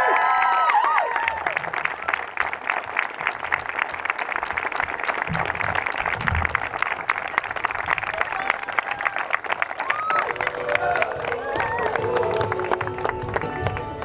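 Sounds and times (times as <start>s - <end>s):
crowd applauding: 0.0s - 14.0s
low thumps: 5.2s - 7.0s.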